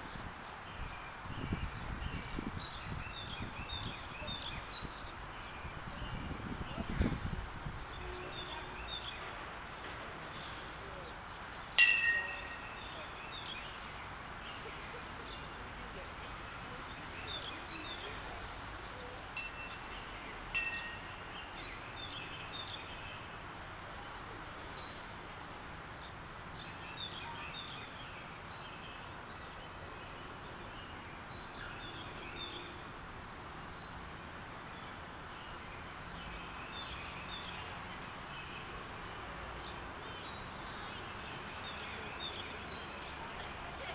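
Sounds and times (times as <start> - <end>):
birds chirping: 0.0 - 33.0, 33.7 - 43.9
steady outdoor hiss: 0.0 - 43.9
sharp metallic clang: 11.8 - 13.0, 20.6 - 21.4
faint ringing clinks: 11.8 - 13.4, 19.3 - 21.6.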